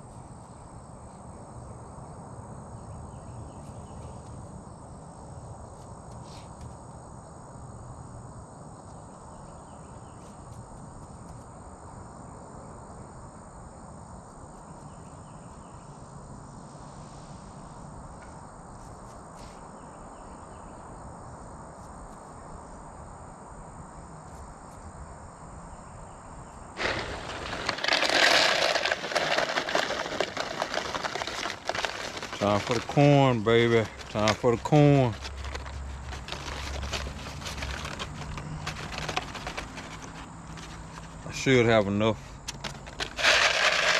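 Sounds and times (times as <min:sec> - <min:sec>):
insect chorus: 0:00.0 - 0:43.9
paper bag crinkling: 0:26.8 - 0:41.6, 0:42.6 - 0:43.9
seed pouring into plastic container: 0:26.8 - 0:41.8, 0:42.7 - 0:43.9.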